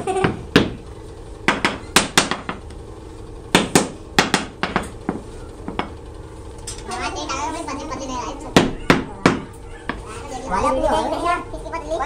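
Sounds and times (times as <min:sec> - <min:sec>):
hammer tapping: 0:01.5 - 0:02.6, 0:03.5 - 0:06.0.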